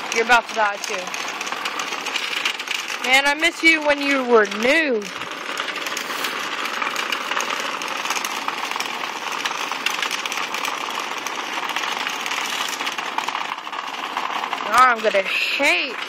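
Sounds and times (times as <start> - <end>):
micro-robots buzzing and rattling: 0.0 - 16.0.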